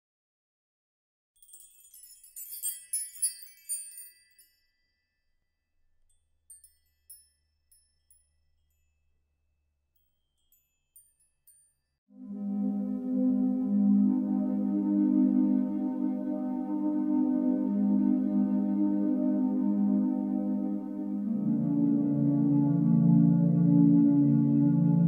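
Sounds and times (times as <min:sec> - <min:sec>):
tinkling chime notes: 0:01.4 - 0:12.1.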